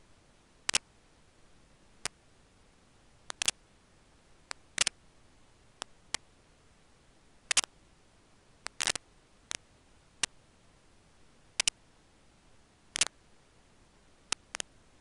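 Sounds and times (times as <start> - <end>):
faint steady hiss: 0.0 - 15.0
nest sticks clicking and snapping: 3.3 - 3.5.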